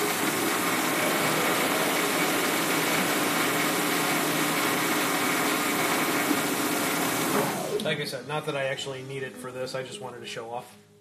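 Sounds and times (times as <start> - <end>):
metal lathe motor and gear whir: 0.0 - 7.9.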